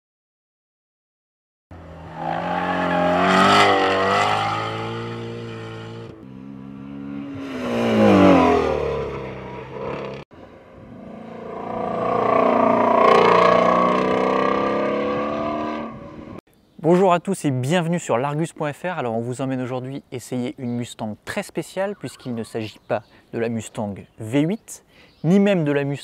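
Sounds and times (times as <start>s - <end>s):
car engine revving at full throttle: 1.8s - 16.4s.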